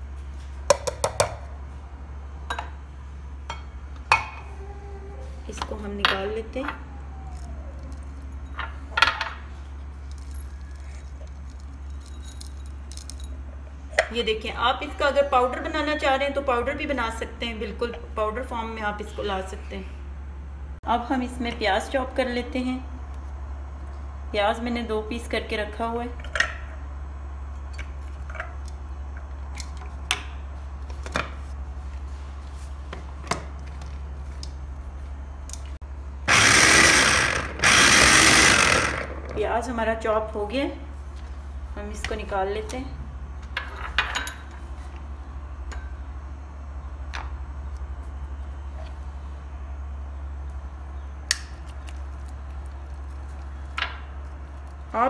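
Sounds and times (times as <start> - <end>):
steady low hum: 0.0 - 55.0
mini chopper motor chopping: 36.3 - 39.4.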